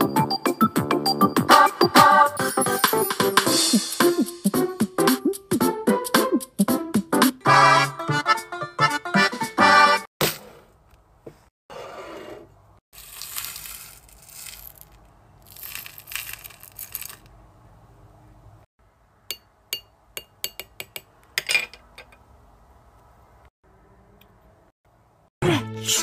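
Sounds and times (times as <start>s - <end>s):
beads clicking onto a glazed dish: 13.0s - 17.3s
plastic scoop rattling through beads: 13.0s - 17.3s.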